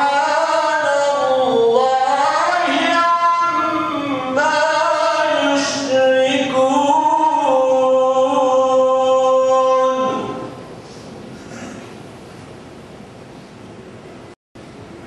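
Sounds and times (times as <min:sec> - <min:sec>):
man reciting melodically: 0:00.0 - 0:10.6.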